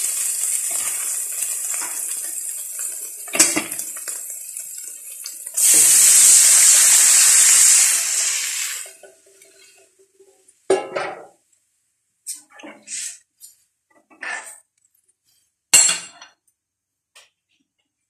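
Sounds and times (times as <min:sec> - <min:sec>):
liquid pouring into a wok: 0:00.0 - 0:09.9
food sizzling in a wok: 0:00.0 - 0:10.4.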